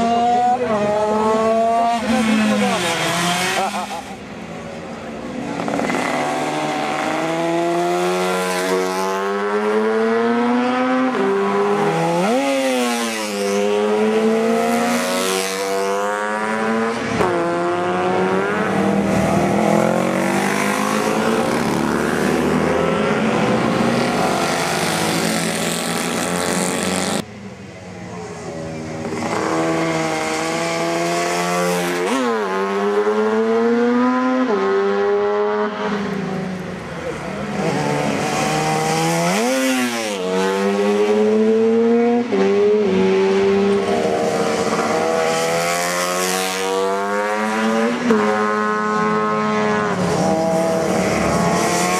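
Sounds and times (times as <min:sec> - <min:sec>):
racing motorcycles revving: 0:00.0 - 0:27.5, 0:28.2 - 0:51.9
motorcycle approaching: 0:05.2 - 0:27.5.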